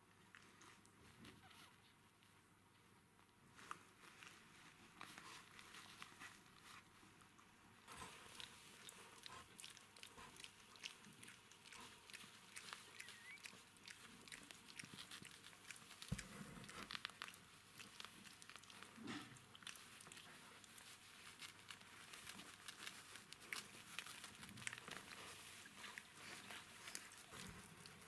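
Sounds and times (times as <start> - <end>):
small clicks and rustling: 0.2 - 8.9, 10.8 - 28.0.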